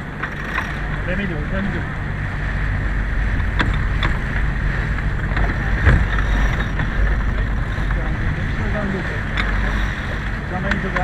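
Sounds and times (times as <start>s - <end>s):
water rushing: 0.0s - 11.0s
wind rumble on microphone: 0.0s - 11.0s
sharp knocks: 5.4s - 6.3s.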